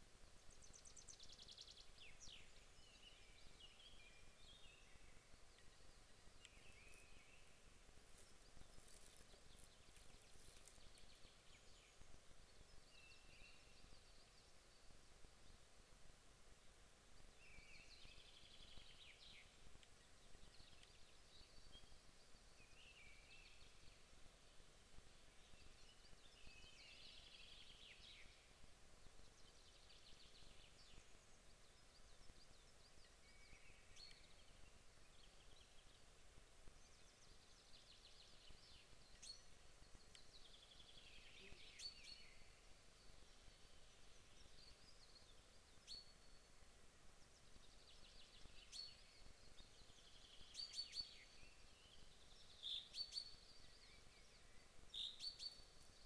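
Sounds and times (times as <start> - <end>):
background hiss: 0.0 - 56.0
songbirds trilling: 0.6 - 14.8.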